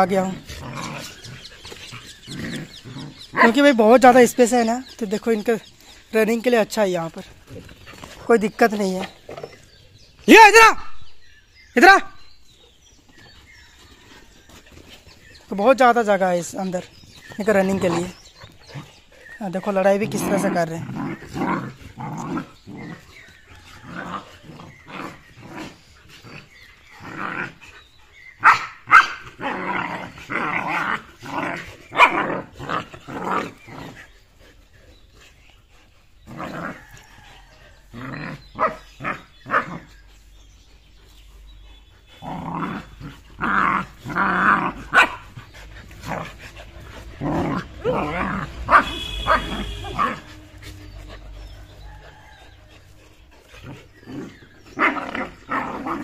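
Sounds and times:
dogs growling: 0.0 - 10.2, 12.7 - 56.0
dogs barking: 28.4 - 33.6, 38.2 - 39.9, 42.1 - 56.0.

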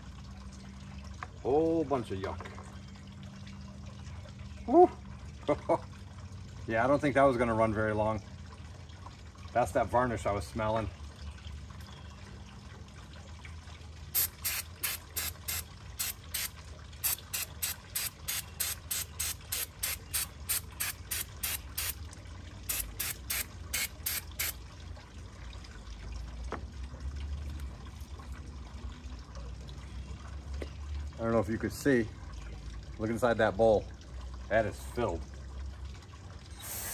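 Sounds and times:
ratchet wrench clicking: 14.2 - 21.9, 22.7 - 24.5.

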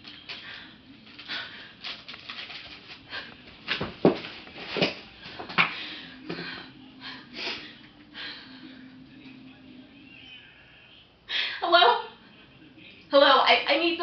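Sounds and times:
gasping breaths: 0.3 - 2.1, 5.3 - 9.1
woman crying: 11.4 - 12.1.

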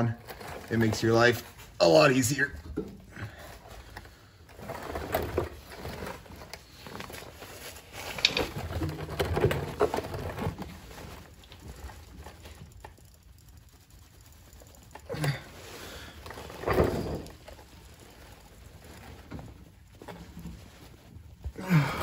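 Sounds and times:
man grunting: 15.1 - 15.5, 21.6 - 22.0.

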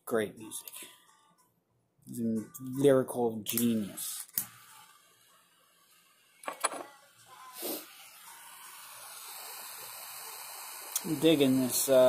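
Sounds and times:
butane torch hissing: 3.6 - 12.0.

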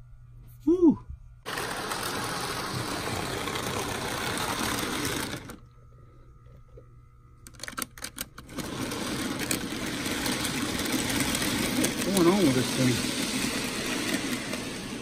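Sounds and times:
model train motor whirring: 1.5 - 5.6, 8.1 - 15.0.

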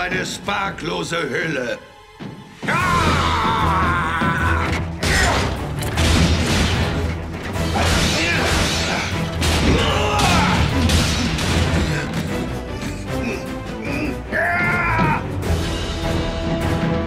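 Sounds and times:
dramatic orchestral score: 0.0 - 17.0
metal impacts and crashes: 4.7 - 12.4.

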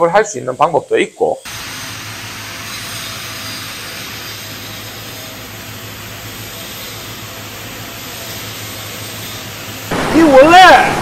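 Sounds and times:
welding arc hissing: 1.4 - 11.0.

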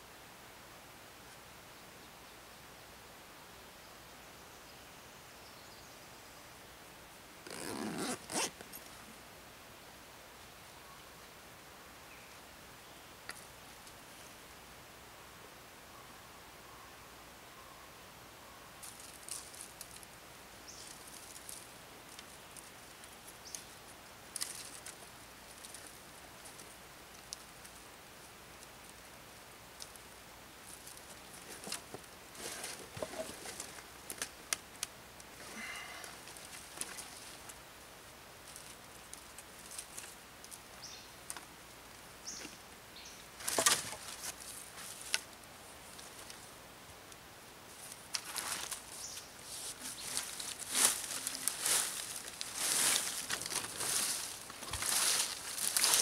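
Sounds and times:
dry twigs crackling and snapping: 18.8 - 27.8, 29.7 - 37.6, 38.4 - 41.5, 47.7 - 49.2, 49.8 - 56.0
broom sweeping dirt: 30.7 - 33.8, 43.4 - 45.1, 47.7 - 56.0.

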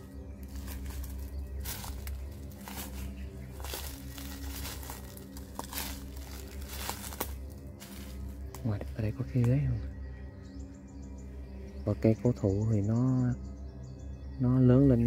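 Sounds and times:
footsteps through dry leaves: 0.0 - 9.2.

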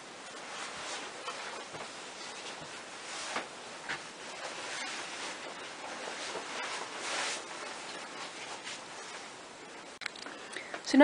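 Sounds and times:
fingers rustling through hair: 0.1 - 10.1.

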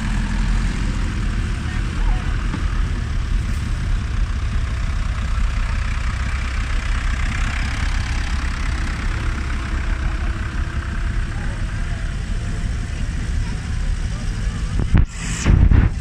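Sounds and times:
tractor engine running at low revs: 0.0 - 16.0.

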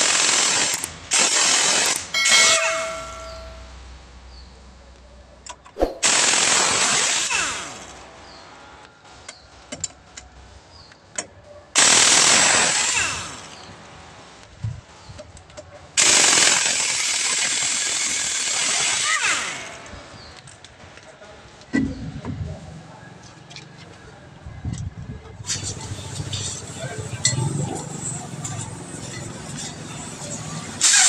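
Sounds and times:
impact wrench hammering: 2.2 - 3.6.

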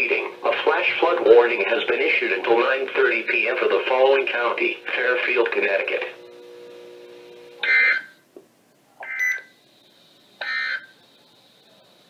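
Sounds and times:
raspy digital data tones: 9.0 - 11.7.

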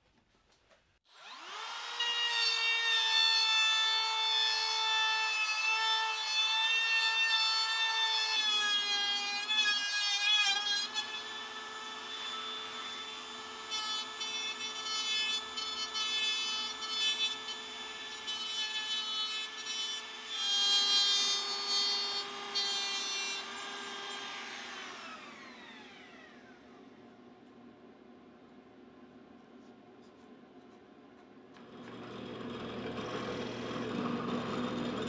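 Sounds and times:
router motor whine: 1.1 - 4.9, 10.8 - 27.1, 31.6 - 35.0
router bit cutting wood: 1.1 - 27.0, 31.6 - 35.0.

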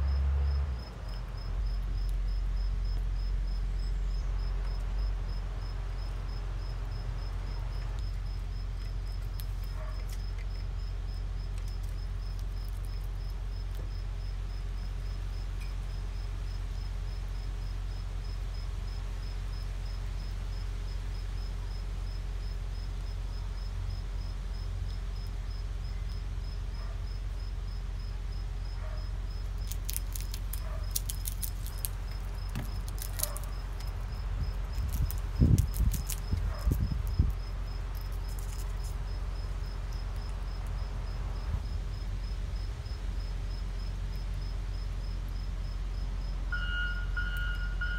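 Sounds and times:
peanut shells cracking: 8.8 - 10.7, 29.4 - 39.1.

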